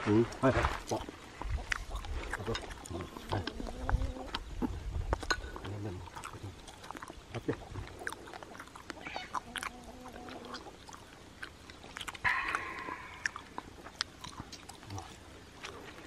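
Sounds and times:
chewing: 0.4s - 16.0s
chopsticks and bowls clinking: 5.2s - 5.7s.

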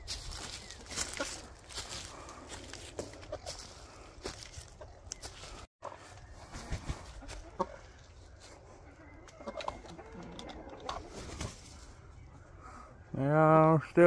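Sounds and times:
chickens clucking softly: 2.9s - 11.5s.

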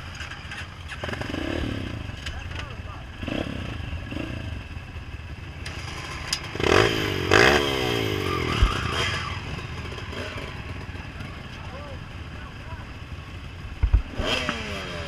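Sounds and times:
dirt bike engines idling: 0.0s - 15.0s
engine revving blips: 5.6s - 10.6s, 14.1s - 15.0s.

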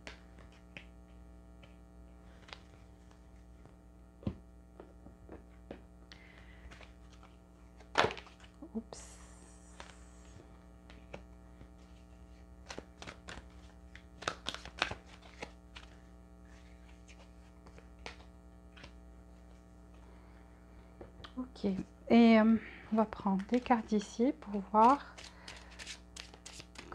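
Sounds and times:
electrical hum: 0.0s - 26.9s
cards clicking and flicking: 5.7s - 8.6s, 9.6s - 19.0s, 23.4s - 26.9s
card rustle: 9.6s - 20.0s, 23.4s - 26.9s.

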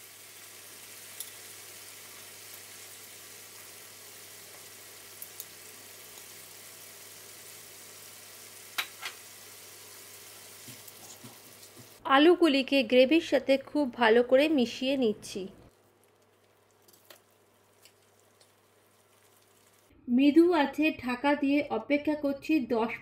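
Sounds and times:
gravy sizzling in a pan: 0.0s - 12.0s, 15.7s - 19.9s
oil popping: 15.7s - 19.9s.

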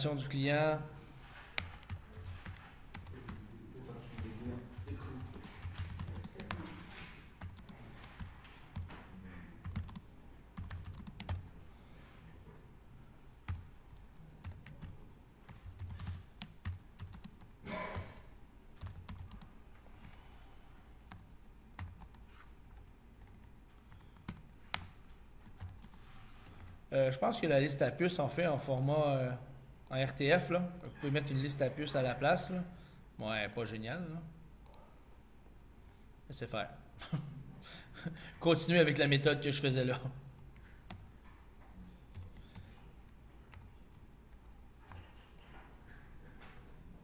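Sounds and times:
keyboard typing: 1.4s - 9.0s, 9.6s - 11.6s, 13.4s - 18.2s, 18.8s - 26.8s, 40.4s - 41.4s, 42.1s - 45.5s.

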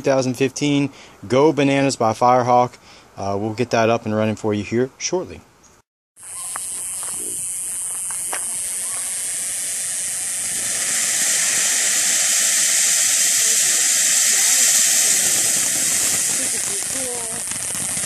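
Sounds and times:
firework fountain hissing: 6.2s - 18.0s.

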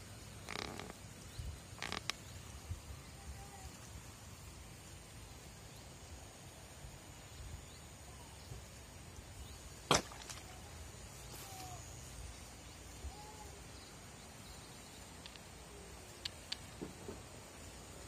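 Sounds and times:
small clicks: 15.2s - 15.5s, 16.2s - 16.7s.

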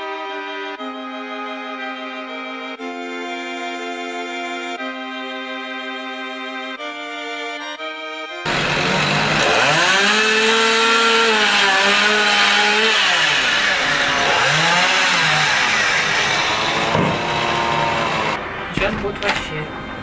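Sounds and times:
chainsaw revving: 8.4s - 18.4s.

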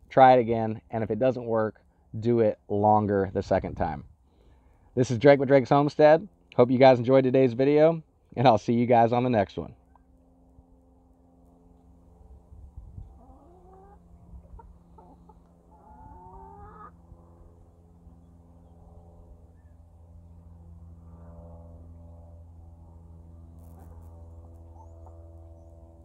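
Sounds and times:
steady low hum: 0.0s - 26.0s
chickens clucking: 13.0s - 17.0s
short rising chicken calls: 13.0s - 18.2s.

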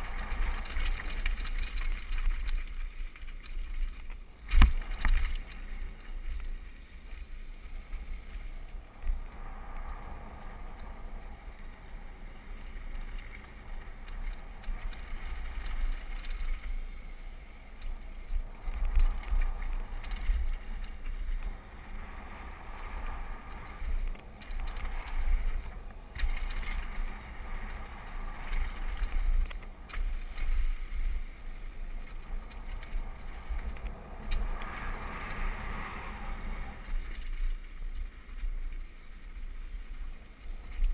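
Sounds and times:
bike tyres rolling on gravel: 0.0s - 40.9s
wind on microphone: 0.0s - 40.9s
bike knocking on rough ground: 3.4s - 5.7s.

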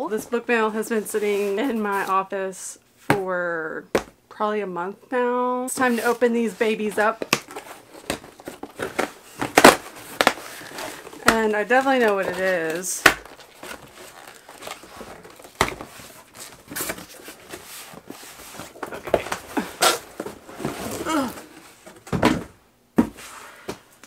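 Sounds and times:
cardboard rustling and scraping: 5.7s - 22.2s.

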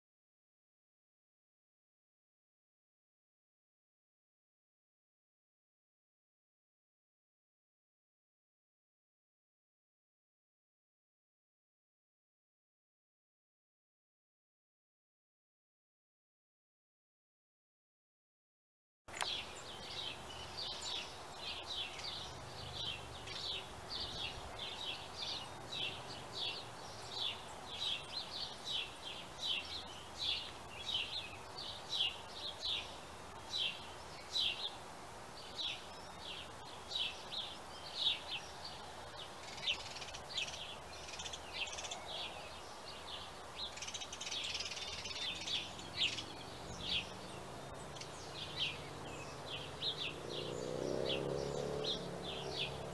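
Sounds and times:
faint background noise: 19.1s - 52.9s
songbirds chirping: 19.1s - 52.9s.

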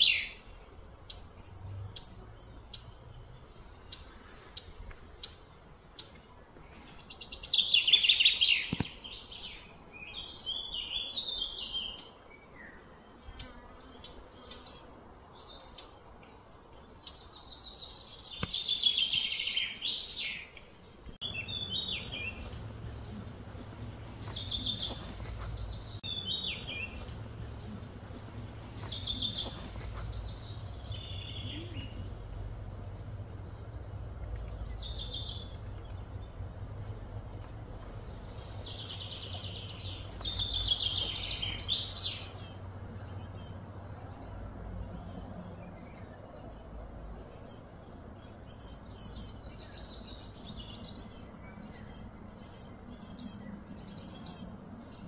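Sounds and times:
birds chirping: 0.0s - 55.0s
steady low hum: 20.8s - 55.0s.

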